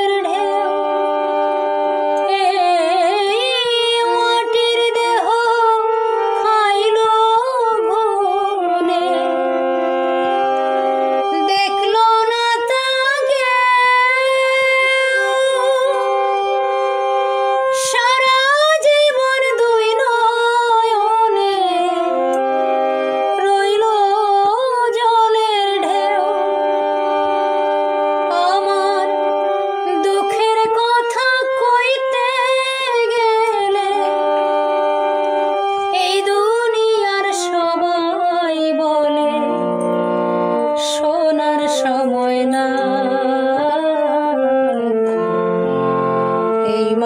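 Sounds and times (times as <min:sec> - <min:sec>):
woman singing: 0:00.0 - 0:00.9, 0:02.2 - 0:09.6, 0:11.3 - 0:16.2, 0:17.7 - 0:22.4, 0:23.3 - 0:26.5, 0:28.3 - 0:34.2, 0:35.9 - 0:39.8, 0:40.8 - 0:45.1, 0:46.6 - 0:47.0
harmonium chords: 0:00.0 - 0:47.0.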